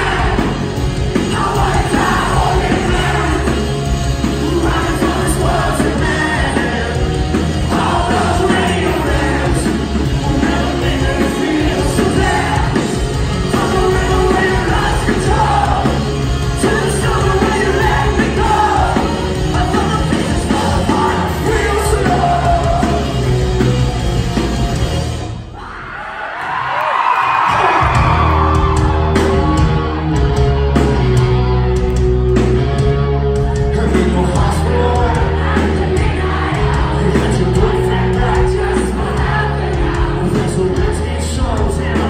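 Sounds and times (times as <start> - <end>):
lead singer singing: 0.0 - 23.6, 33.4 - 42.0
electric guitars: 0.0 - 25.6, 27.2 - 42.0
drums: 0.0 - 42.0.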